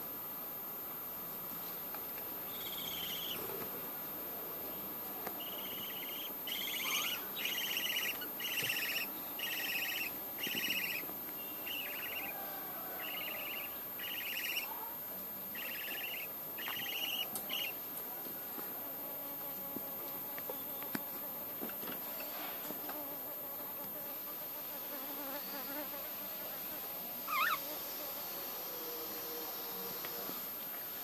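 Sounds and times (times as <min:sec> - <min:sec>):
budgerigar raspy calls: 0:02.6 - 0:03.4, 0:05.4 - 0:14.8, 0:15.5 - 0:17.8, 0:27.3 - 0:27.7.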